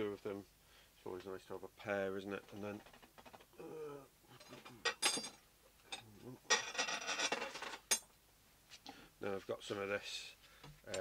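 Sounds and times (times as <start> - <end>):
rubbing and scraping handling noise: 2.2 - 3.5, 4.3 - 8.0.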